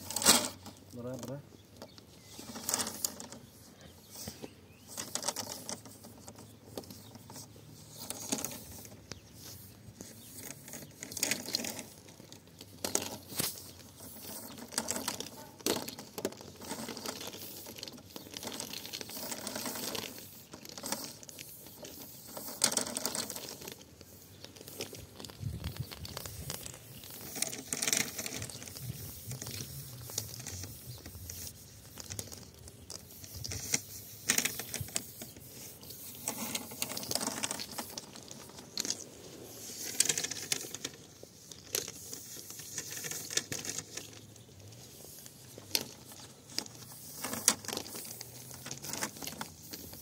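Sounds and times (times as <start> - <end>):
plastic hose dragged over stones: 0.0 - 50.0.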